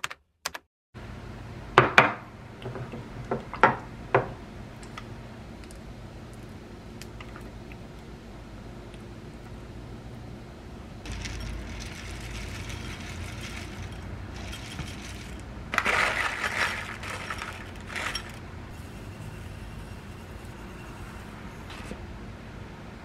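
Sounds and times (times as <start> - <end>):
dry food pattering into bowl: 11.1 - 18.4
paper bag rustling: 11.1 - 18.4.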